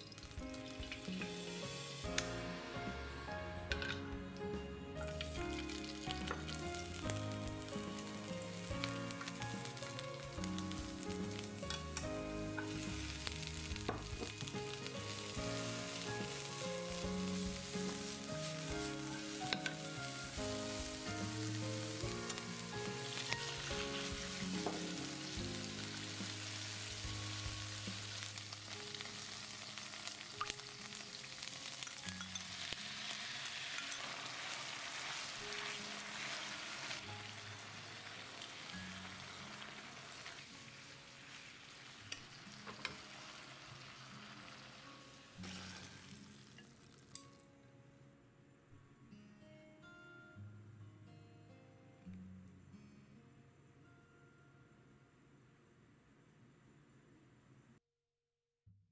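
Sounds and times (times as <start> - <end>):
vegetables sizzling in hot oil: 0.0 - 3.0, 5.0 - 47.3
soft background music: 0.0 - 55.3.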